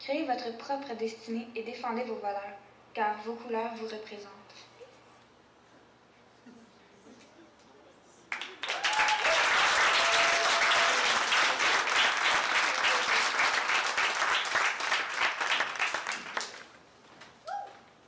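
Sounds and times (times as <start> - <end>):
audience applauding: 8.3 - 16.8.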